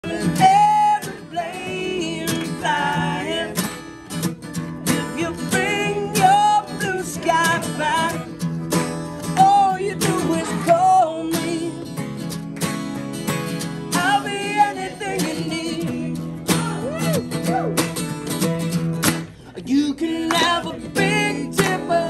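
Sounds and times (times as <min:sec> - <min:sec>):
men singing: 0:00.0 - 0:03.8, 0:04.9 - 0:08.2, 0:09.4 - 0:11.9, 0:13.9 - 0:16.9, 0:19.6 - 0:22.0
acoustic guitars strumming: 0:00.0 - 0:22.0.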